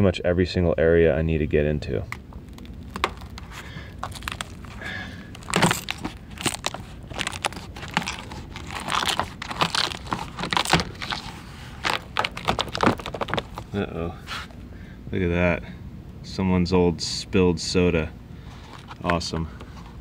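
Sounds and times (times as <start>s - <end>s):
sharp clicks and pops: 2.1s - 4.7s
weatherstripping rustling and scraping: 2.1s - 14.6s, 18.5s - 20.0s.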